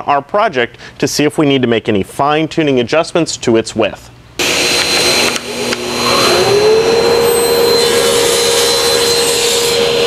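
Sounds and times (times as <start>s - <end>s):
table saw whine: 4.4s - 10.0s.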